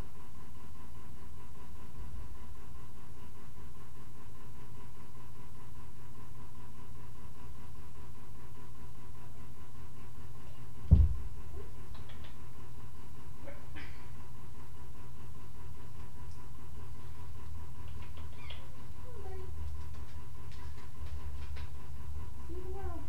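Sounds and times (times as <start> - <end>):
low room hum: 0.0 - 23.0
dull thump: 10.9 - 11.3.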